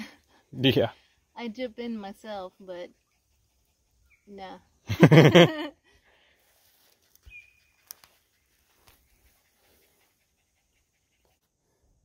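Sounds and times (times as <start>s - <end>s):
faint clicks: 7.1s - 8.2s
faint high chirp: 7.2s - 8.1s.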